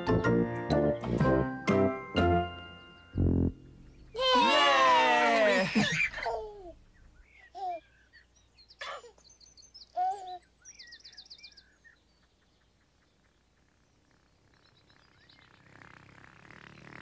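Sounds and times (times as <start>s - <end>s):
soft music: 0.0s - 4.1s
high bird chirps: 2.8s - 4.2s
baby giggling and cooing: 5.6s - 6.8s, 7.5s - 7.9s, 10.0s - 10.4s.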